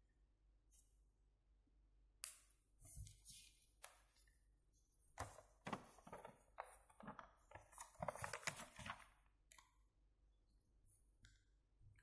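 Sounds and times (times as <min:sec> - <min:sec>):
paper rustling and crinkling: 0:05.2 - 0:09.2.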